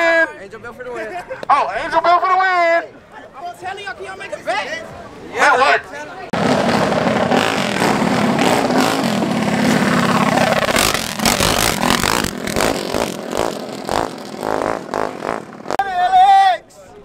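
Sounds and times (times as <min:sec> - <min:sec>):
mini bike engines accelerating: 0:06.4 - 0:15.8.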